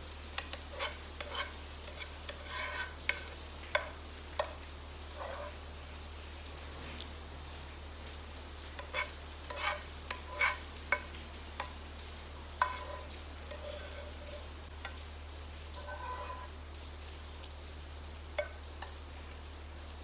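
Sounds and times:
metal spoon scraping a frying pan: 0.4 - 5.6, 8.8 - 11.8, 12.6 - 15.0, 15.7 - 16.6.

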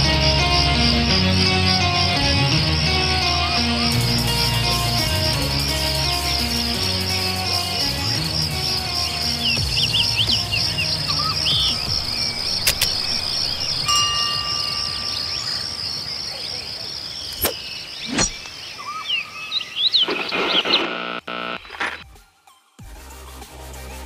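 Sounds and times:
electronic music: 0.0 - 15.4
pulsing insect drone: 0.0 - 21.8
birds chirping: 0.0 - 22.0
sharp clicks: 11.5 - 13.9
short chime: 13.8 - 15.7.

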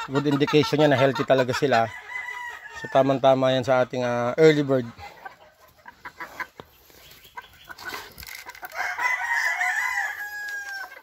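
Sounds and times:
rooster crowing: 2.0 - 3.0, 8.7 - 11.0.

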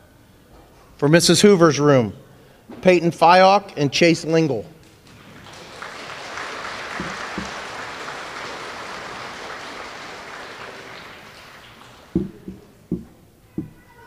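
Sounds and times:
audience clapping: 4.8 - 13.1.

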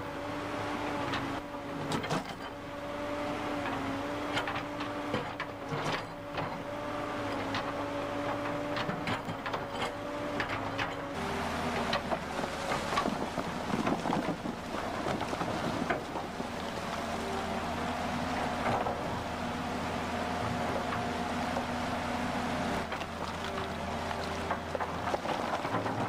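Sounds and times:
excavator engine running: 0.0 - 26.0
water rushing over rocks: 11.2 - 26.0.

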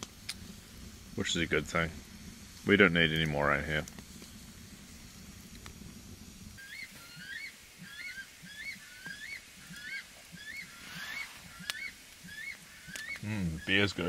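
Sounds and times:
bird shrill whistled calls: 6.6 - 14.0.

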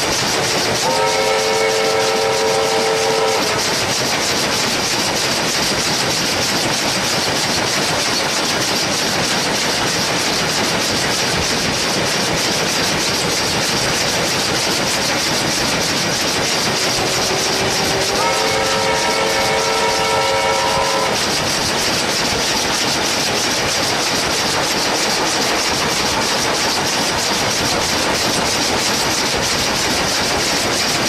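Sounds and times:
steam train rushing: 0.0 - 31.0
wheels rattling on rail: 0.0 - 31.0
steam locomotive whistle: 0.3 - 4.0, 16.5 - 21.4.

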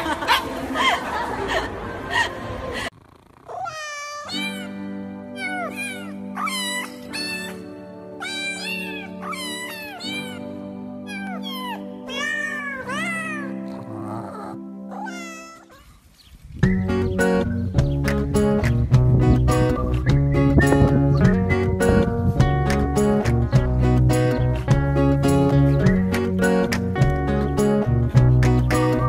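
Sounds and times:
high meow-like cries: 3.5 - 13.6, 14.9 - 16.0
music with held chords: 4.4 - 15.1, 16.6 - 29.0.

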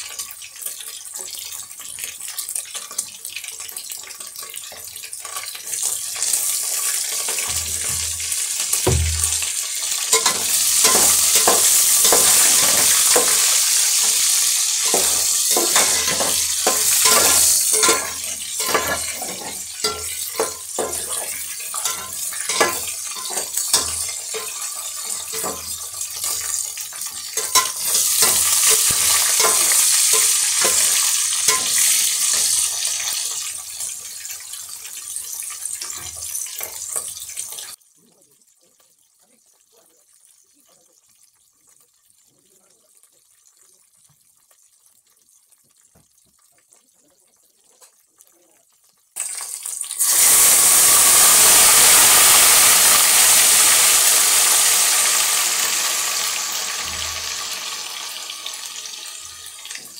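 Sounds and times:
meat sizzling in a pan: 0.0 - 59.9
utensil scraping a pan: 5.4 - 33.2.

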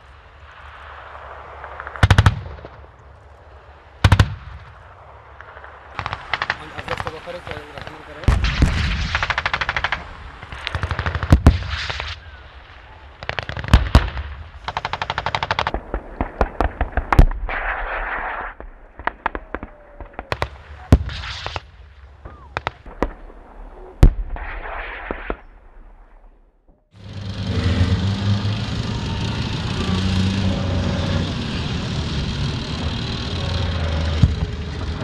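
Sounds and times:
single sharp gunshots: 6.0 - 12.2.

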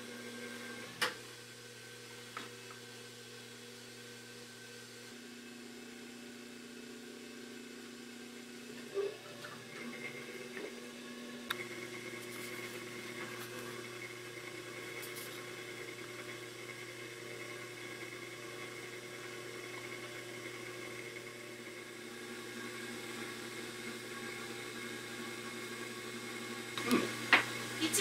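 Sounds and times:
potter's wheel motor humming: 0.0 - 28.0.

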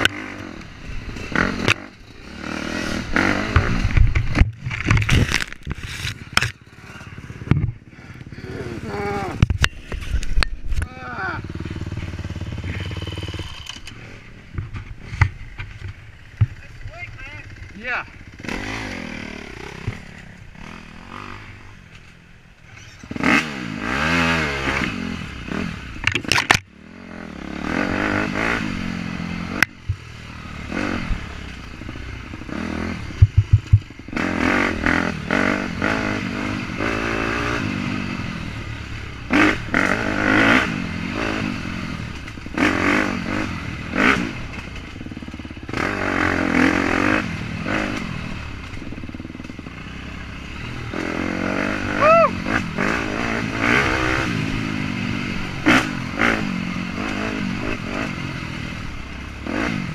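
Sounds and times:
dirt bike engine revving: 0.0 - 21.9, 22.6 - 59.9
bike knocking on rough ground: 14.5 - 16.6, 33.1 - 34.0.

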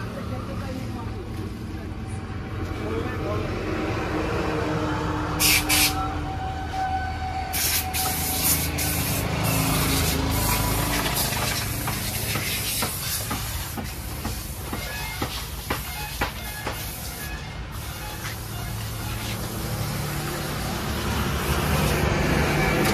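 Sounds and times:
high-pressure water jet spraying: 5.4 - 6.0, 7.5 - 22.9.

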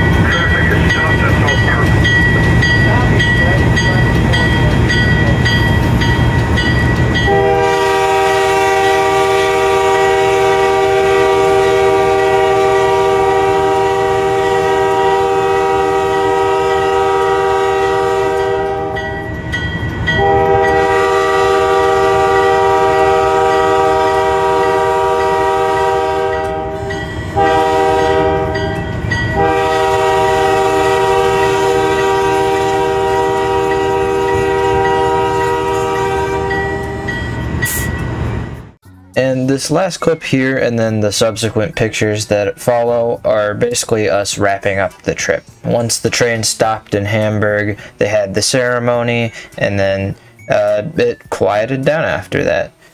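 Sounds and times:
train rumbling on rails: 0.0 - 38.8
locomotive air horn blasts: 7.2 - 19.2, 20.1 - 37.8.

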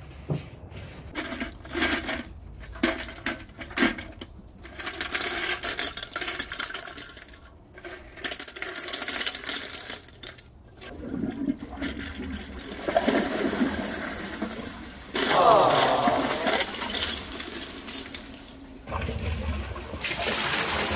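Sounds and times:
ornaments clattering into toilet: 1.1 - 10.8, 12.7 - 18.8
water wash: 10.7 - 20.9.

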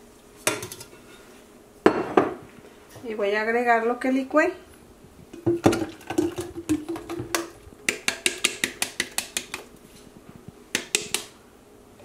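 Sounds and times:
blender cup tapping on metal pot: 5.4 - 9.6.

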